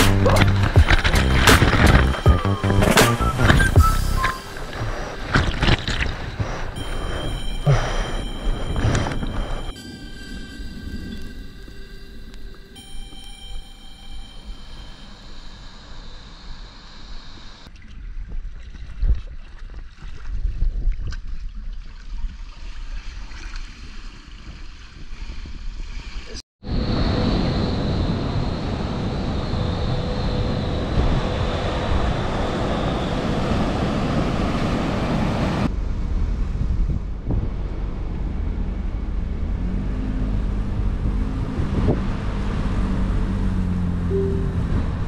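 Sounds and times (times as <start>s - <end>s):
waves and rushing water: 0.0s - 15.2s, 31.2s - 35.7s
wind buffeting microphone: 26.8s - 43.6s
faint music: 44.1s - 45.0s.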